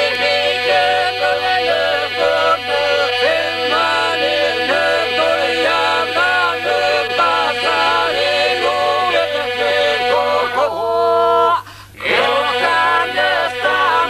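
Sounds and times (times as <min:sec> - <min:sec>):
unaccompanied group singing: 0:00.0 - 0:14.0.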